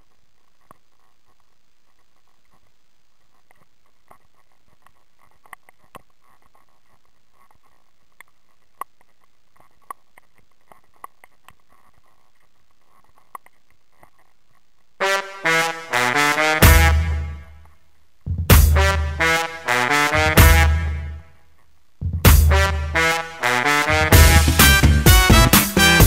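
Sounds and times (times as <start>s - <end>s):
faint clicks and taps: 0.0s - 14.9s
low hiss: 0.0s - 26.0s
loud brass music: 15.0s - 17.6s, 18.5s - 21.3s, 22.3s - 26.0s.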